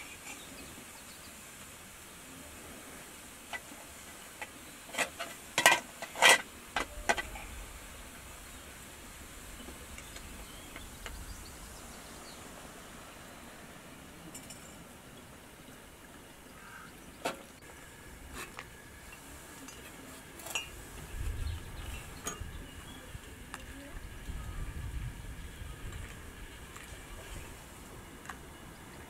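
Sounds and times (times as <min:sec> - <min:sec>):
glass and metal clinking: 0:14.3 - 0:14.9, 0:19.0 - 0:20.8, 0:21.9 - 0:22.5.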